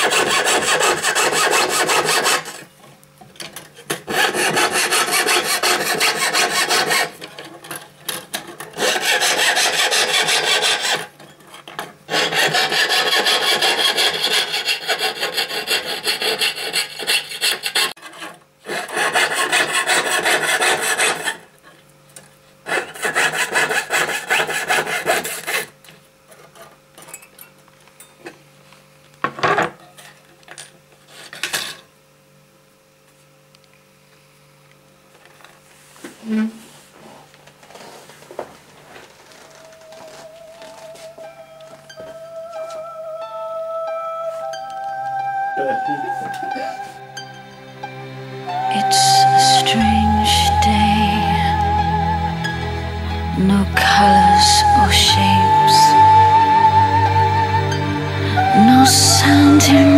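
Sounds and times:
fretsaw rasping through metal: 0:00.0 - 0:02.6, 0:04.1 - 0:07.3, 0:08.7 - 0:11.2, 0:12.1 - 0:21.4.

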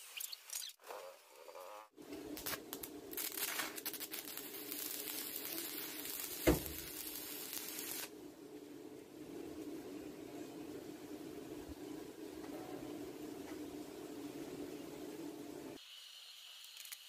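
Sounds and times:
welding arc crackling: 0:02.0 - 0:08.2
sharp pop: 0:06.4 - 0:06.9.

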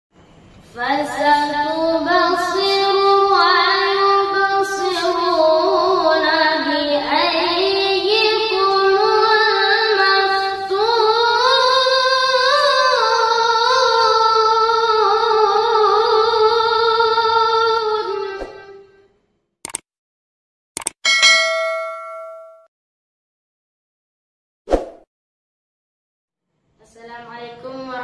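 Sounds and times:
boy reciting melodically: 0:00.7 - 0:18.7, 0:26.8 - 0:28.0.

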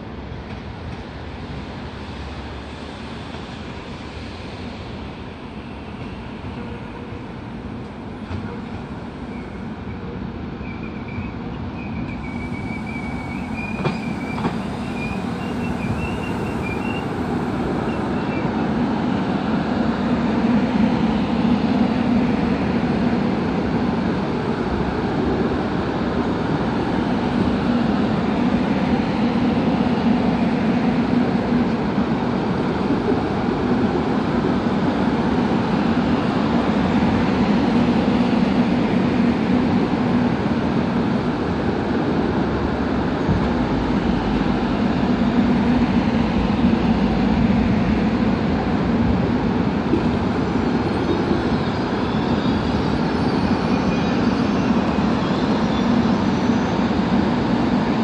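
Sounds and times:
train wheels and motors rumbling: 0:00.0 - 0:58.0
wavering wheel squeal: 0:10.6 - 0:17.1.

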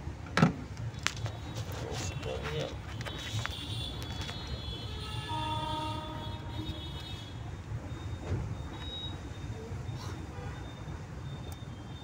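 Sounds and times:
horn held note: 0:05.3 - 0:06.8.

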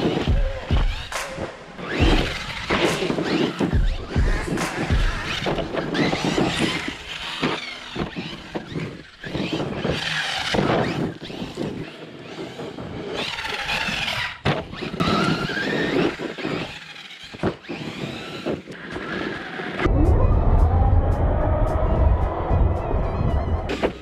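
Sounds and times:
tyres on loose dirt: 0:00.0 - 0:19.8
electric motor whining: 0:00.0 - 0:24.0.

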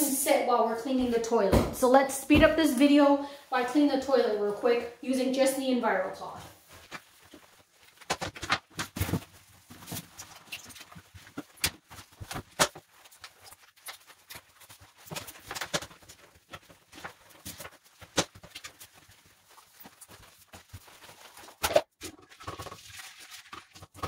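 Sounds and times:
cloth rubbing: 0:06.4 - 0:08.1, 0:09.3 - 0:21.8.

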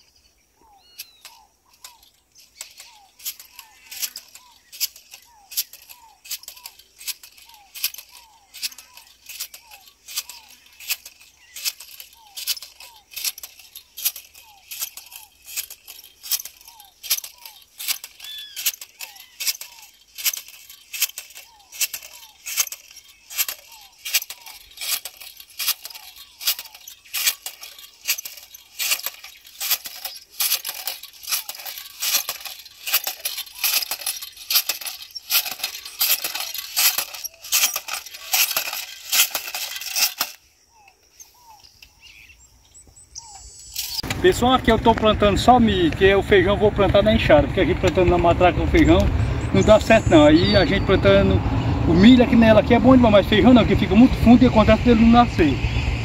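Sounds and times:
jab planter clicking and rattling: 0:00.8 - 0:42.0, 0:43.4 - 0:56.0.

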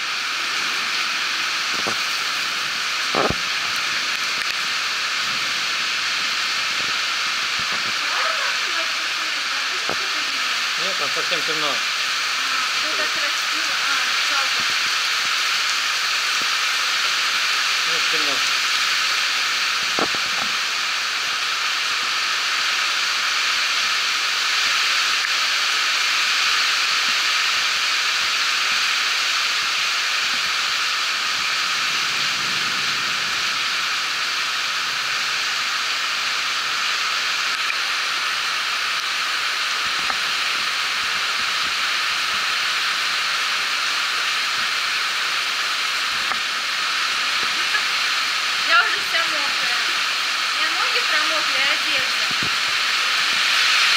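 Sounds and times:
heavy rain pouring: 0:00.0 - 0:53.9.

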